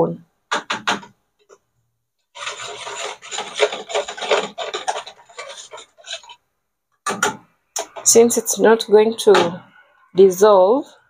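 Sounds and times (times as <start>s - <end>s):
whisk scraping plastic bowl: 2.4s - 6.4s, 7.8s - 8.6s.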